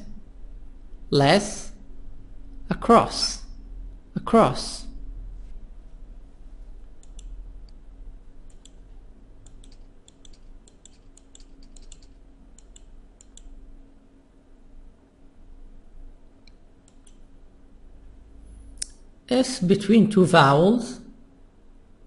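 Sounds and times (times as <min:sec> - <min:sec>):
faint low hum: 0:00.0 - 0:22.0
computer mouse clicks: 0:06.9 - 0:07.8, 0:08.4 - 0:08.8, 0:09.4 - 0:13.6, 0:16.4 - 0:17.3.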